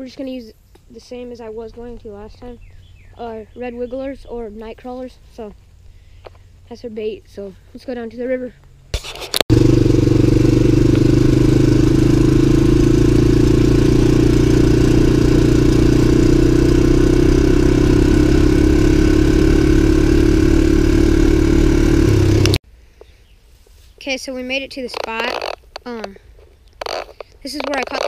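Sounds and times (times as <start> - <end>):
atv engine running: 1.1 - 8.9, 9.5 - 22.6, 26.8 - 28.0.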